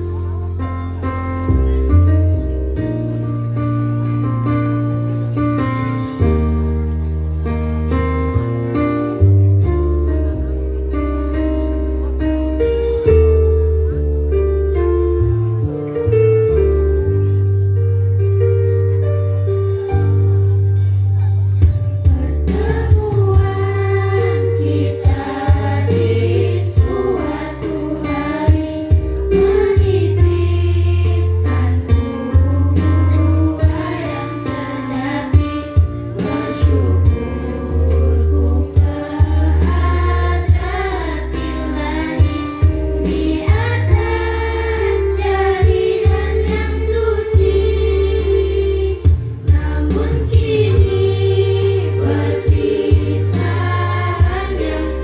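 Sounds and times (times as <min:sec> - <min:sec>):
backing music with deep bass: 0:00.0 - 0:55.0
girls singing together: 0:22.1 - 0:55.0.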